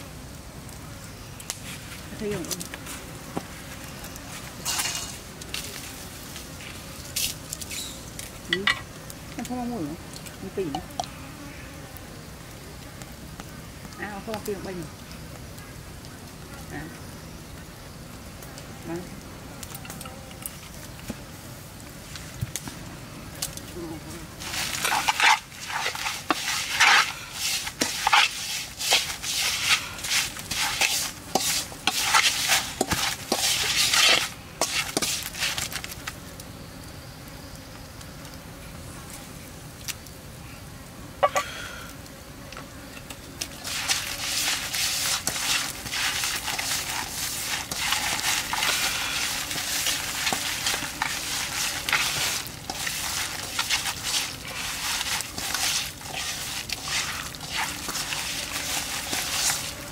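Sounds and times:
wooden pestle scraping a pan: 4.3s - 5.8s, 24.4s - 36.0s, 43.4s - 59.9s
hands kneading mixture rustling: 24.4s - 36.0s, 43.5s - 59.9s.

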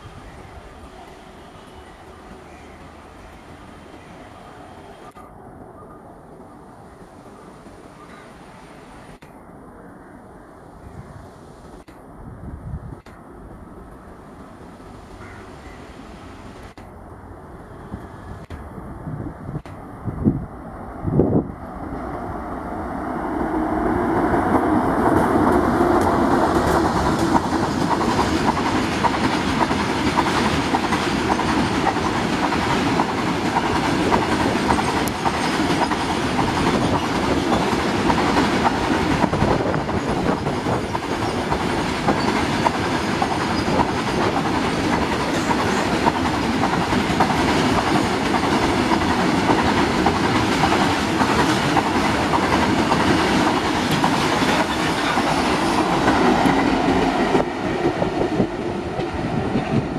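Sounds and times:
train wheels clattering on rails: 24.0s - 59.9s.

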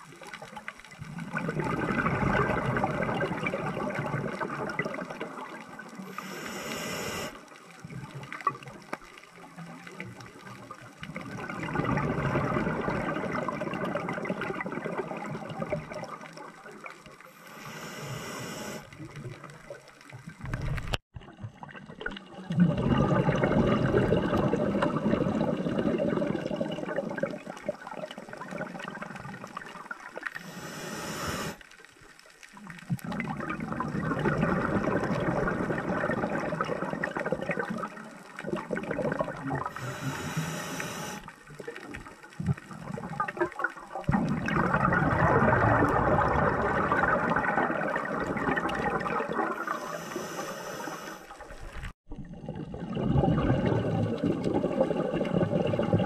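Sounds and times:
exhaled bubbles rushing: 0.0s - 6.5s, 9.4s - 17.6s, 18.7s - 30.6s, 32.5s - 50.2s, 50.8s - 56.0s
hissing regulator inhalations: 6.1s - 7.4s, 17.3s - 18.9s, 30.4s - 31.6s, 39.7s - 41.3s, 49.6s - 51.3s.

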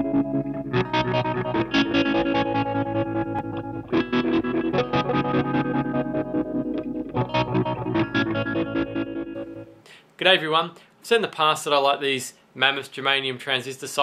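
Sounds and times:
distorted electric guitar: 0.0s - 9.8s.

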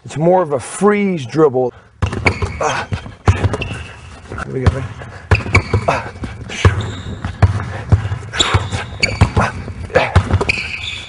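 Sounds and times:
shoe squeaks: 2.0s - 4.6s, 5.2s - 11.0s.

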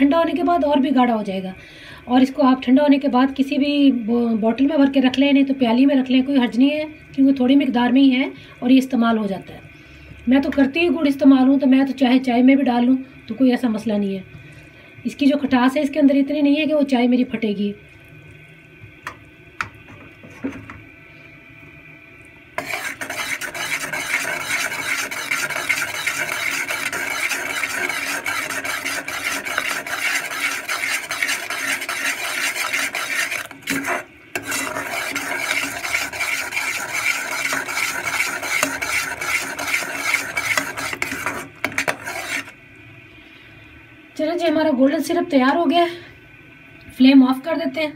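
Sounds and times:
metal spoon scraping saucepan: 22.6s - 42.5s.

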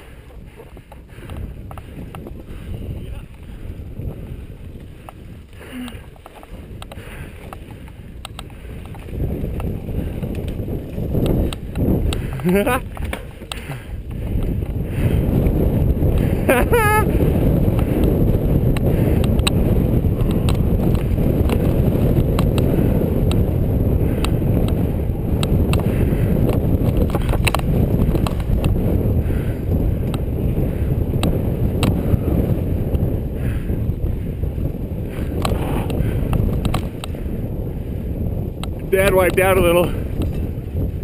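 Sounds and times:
wind buffeting microphone: 0.0s - 41.0s
bike clicks and knocks: 4.8s - 14.8s, 17.7s - 23.4s, 24.2s - 29.4s, 35.1s - 37.2s, 40.1s - 40.5s.

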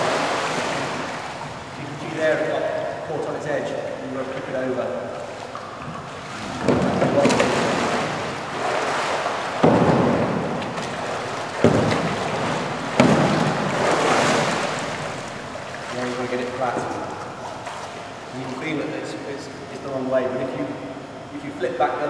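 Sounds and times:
paddle hitting water: 0.0s - 2.4s, 4.2s - 18.7s
water splashing and sloshing: 0.0s - 22.0s.

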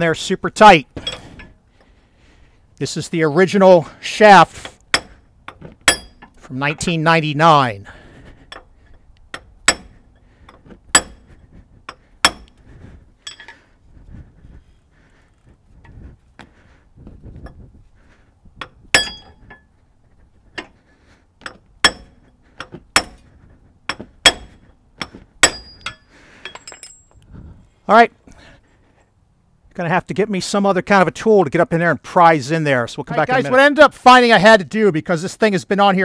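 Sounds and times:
hammer striking metal: 4.9s - 6.3s, 9.3s - 10.0s, 10.9s - 11.2s, 12.2s - 12.5s, 18.9s - 19.4s, 21.4s - 22.2s, 23.0s - 23.2s, 23.9s - 27.0s.

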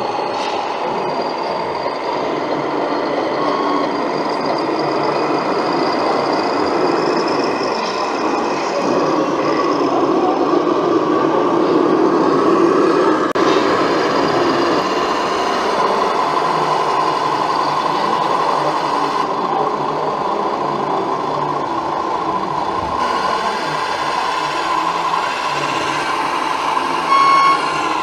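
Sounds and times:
brief pitched tone: 3.0s - 6.0s, 27.0s - 28.0s
model truck motor whine: 13.1s - 28.0s.

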